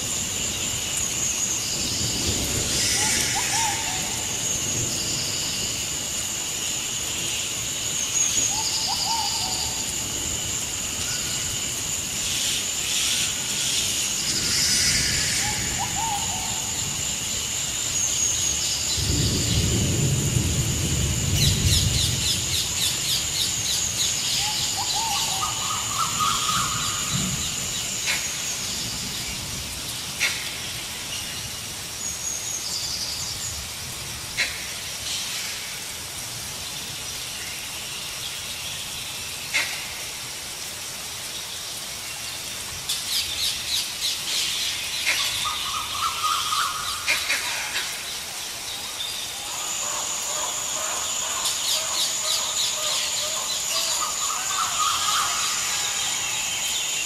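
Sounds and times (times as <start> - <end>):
birds calling and chirping: 21.3 - 33.7, 42.4 - 57.0.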